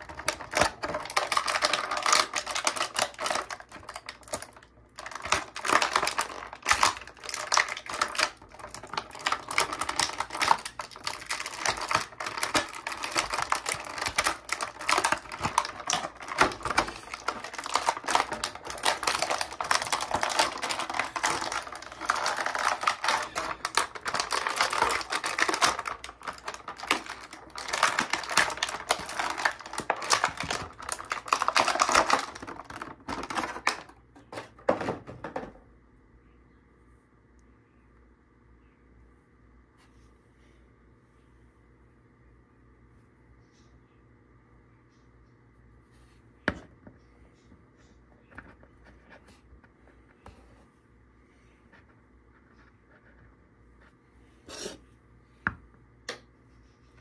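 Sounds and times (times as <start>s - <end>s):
plastic packaging crinkling: 0.0s - 34.9s.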